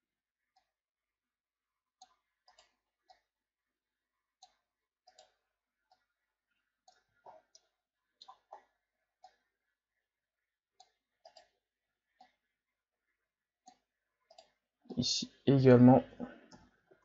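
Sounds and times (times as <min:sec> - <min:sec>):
computer mouse clicks: 0:02.0 - 0:03.2, 0:04.4 - 0:06.1, 0:06.9 - 0:09.4, 0:10.8 - 0:11.6.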